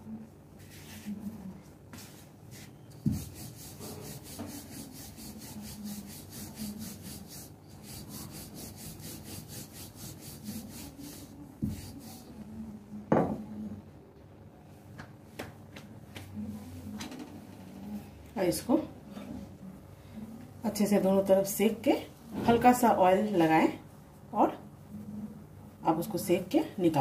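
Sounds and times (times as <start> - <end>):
rolling pin rubbing on dough: 0.6 - 12.5
knock: 13.1 - 13.4.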